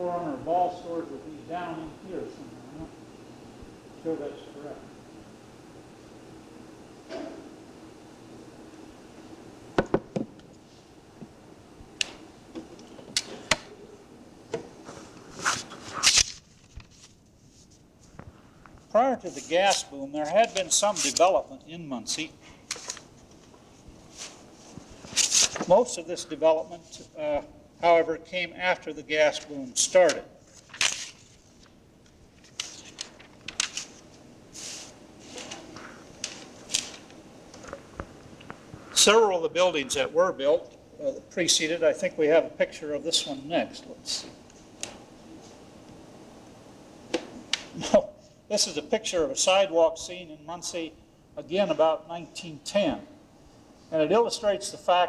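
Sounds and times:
tape hiss: 0.0 - 55.0
faint rustles and clicks: 14.7 - 21.4
rustling noises: 14.7 - 21.4, 22.4 - 26.0, 29.4 - 39.2.

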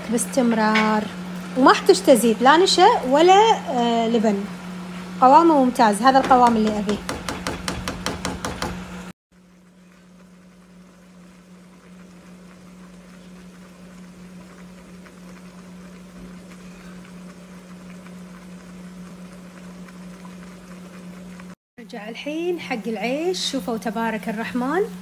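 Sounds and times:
sauce simmering in a pan: 9.4 - 21.6.

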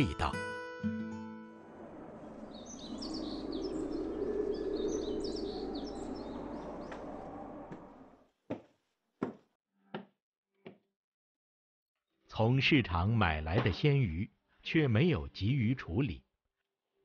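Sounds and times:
small birds chirping: 2.1 - 8.2
footsteps on stairs: 8.5 - 10.1.

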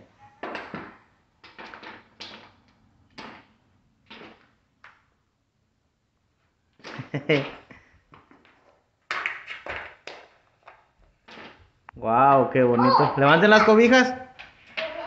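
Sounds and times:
wooden toy blocks clattering: 0.4 - 5.1.

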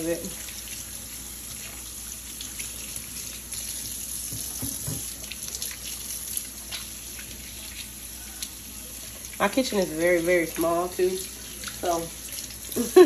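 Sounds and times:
tap running into steel sink: 4.2 - 5.2.

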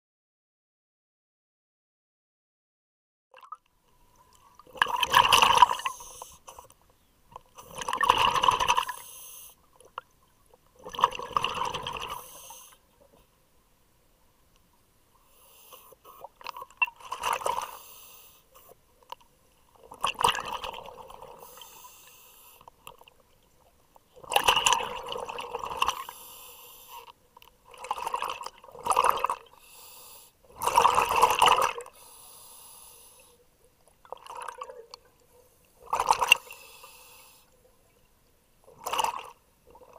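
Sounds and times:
exhaled air bubbling underwater: 3.4 - 6.4, 7.3 - 13.1, 16.1 - 17.8, 19.7 - 22.1, 22.8 - 26.2, 27.0 - 29.6, 30.4 - 32.1, 33.2 - 36.7, 37.6 - 39.9.

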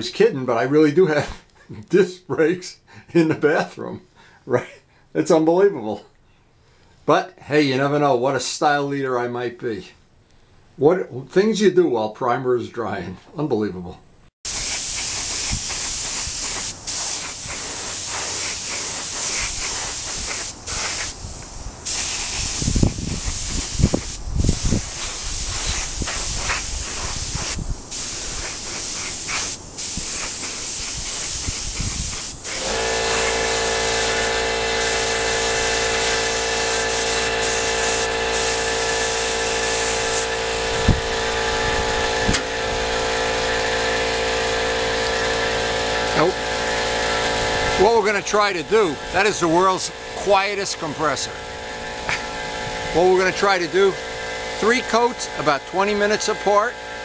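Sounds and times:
paint spray gun hissing: 14.5 - 53.1
air compressor humming: 14.5 - 57.0
wind buffeting microphone: 21.2 - 28.0, 31.4 - 32.2, 40.6 - 42.9.

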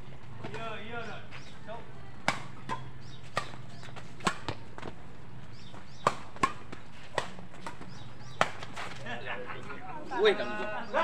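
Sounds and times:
rackets hitting shuttlecock: 2.2 - 9.1.

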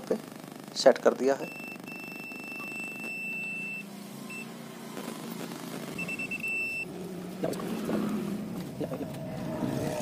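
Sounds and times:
meter beeping: 1.4 - 4.6, 5.9 - 6.9.

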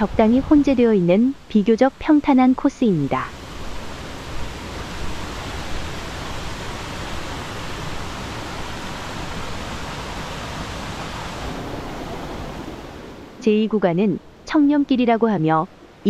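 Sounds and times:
stream rushing over rocks: 2.6 - 13.4.

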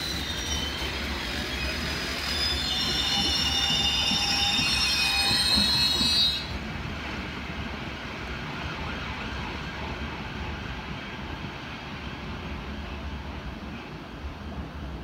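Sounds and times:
train brakes squealing: 0.0 - 6.6
train rolling: 0.0 - 11.6.

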